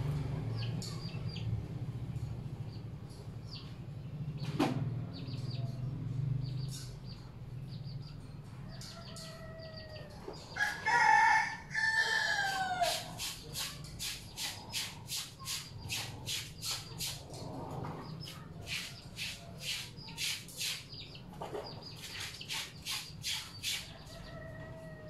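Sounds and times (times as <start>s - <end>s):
rooster crowing: 8.9s - 13.0s.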